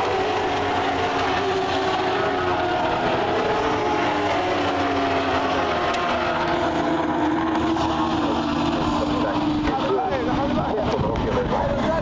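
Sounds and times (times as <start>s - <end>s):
racing motorcycles passing: 0.0s - 12.0s.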